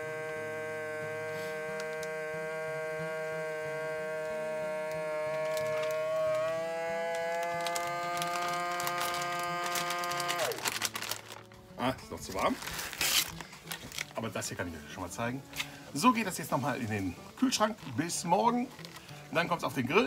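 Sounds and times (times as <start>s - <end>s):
vacuum sealer pump running: 0.0s - 14.2s
plastic bag crackling: 3.8s - 20.0s.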